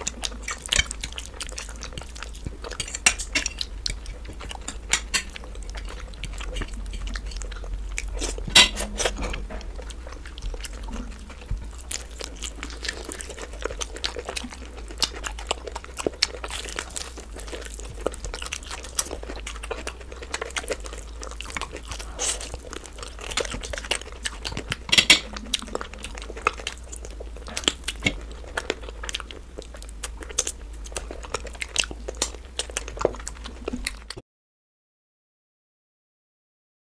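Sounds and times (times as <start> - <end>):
crunching and chewing food: 0.0 - 34.2
steady low hum: 0.0 - 34.2.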